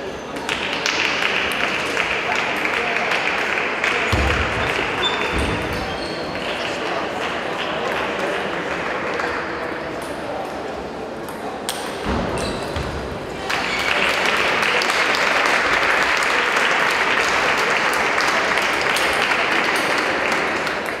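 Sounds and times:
audience applause: 0:13.4 - 0:21.0.

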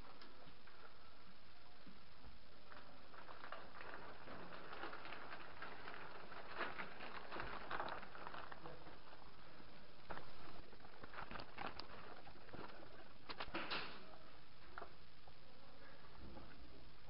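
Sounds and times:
steady low hiss: 0:00.0 - 0:17.0
footsteps: 0:02.6 - 0:14.9
clothing and gear rustling: 0:03.2 - 0:09.4.

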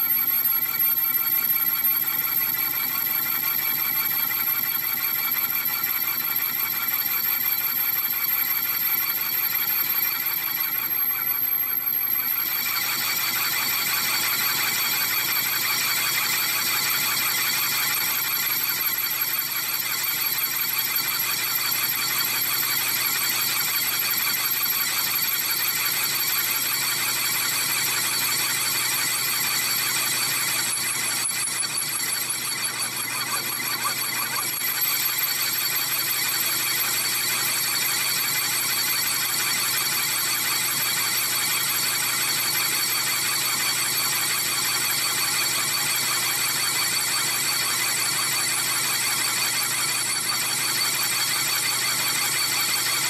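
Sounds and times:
lathe tool squealing on steel: 0:28.9 - 0:43.4.

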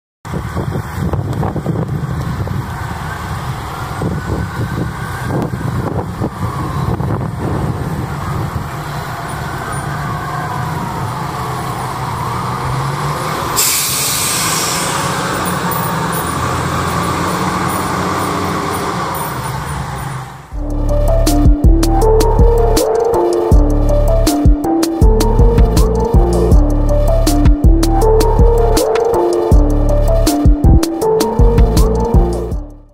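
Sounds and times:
fire engine diesel engine: 0:00.3 - 0:32.6
siren wailing: 0:07.9 - 0:12.2, 0:20.6 - 0:32.5
air hiss: 0:13.6 - 0:15.3
music: 0:20.6 - 0:32.9.

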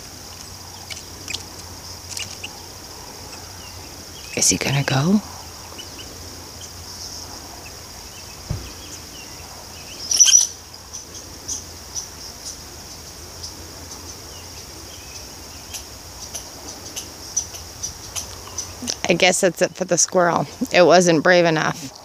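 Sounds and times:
loud bird chirp: 0:00.0 - 0:19.1
high insect trill: 0:00.0 - 0:22.0
faint bird chirps: 0:00.3 - 0:19.1.

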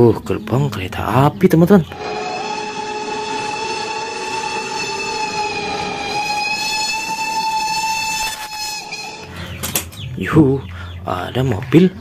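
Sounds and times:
train horn blast: 0:01.9 - 0:09.4
train running noise: 0:01.9 - 0:10.2.

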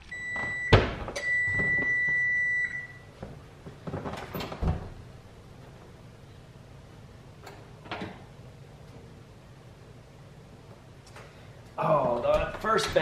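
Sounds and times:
oven timer long beep: 0:00.0 - 0:03.1
oven door opening with knocks: 0:12.2 - 0:13.0.

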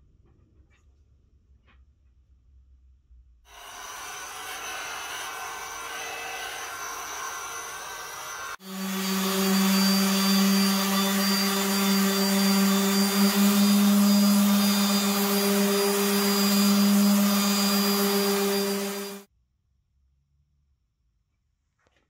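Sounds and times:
orbital sander running: 0:03.5 - 0:19.3.

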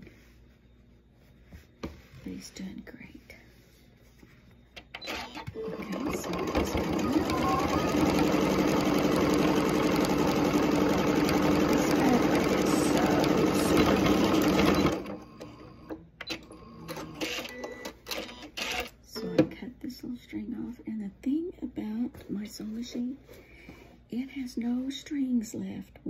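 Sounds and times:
sewing machine stitching: 0:05.0 - 0:15.2.

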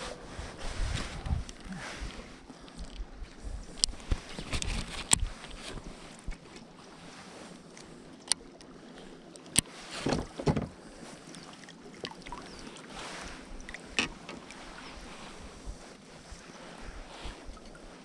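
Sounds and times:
wind on microphone: 0:00.0 - 0:06.4, 0:12.4 - 0:18.0
rustle of fishing rod handling: 0:00.0 - 0:18.0
water lapping around boat: 0:00.0 - 0:18.0.

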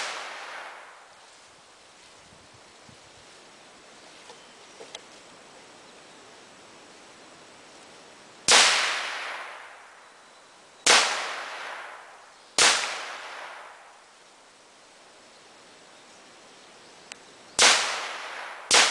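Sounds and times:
gunshots with echo: 0:17.6 - 0:18.9.

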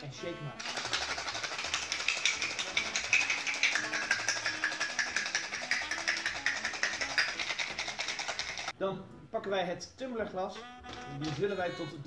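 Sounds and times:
ice rattling in cocktail shaker: 0:00.6 - 0:08.7.

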